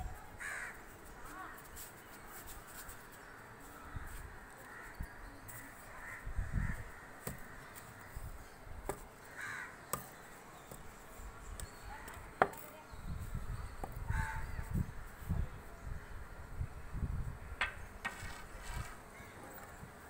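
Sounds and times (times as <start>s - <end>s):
birds cawing: 0.4s - 0.8s, 4.6s - 8.2s, 9.2s - 10.2s.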